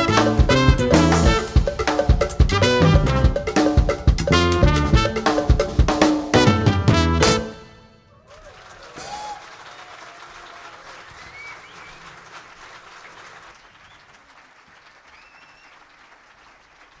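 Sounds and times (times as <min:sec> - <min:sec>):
audience applauding: 0:08.1 - 0:17.0.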